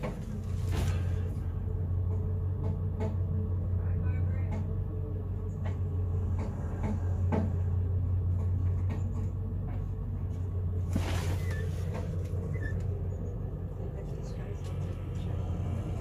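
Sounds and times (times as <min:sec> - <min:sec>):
knocks and clunks: 0:00.0 - 0:03.6, 0:04.3 - 0:12.9
truck engine idling: 0:00.0 - 0:16.0.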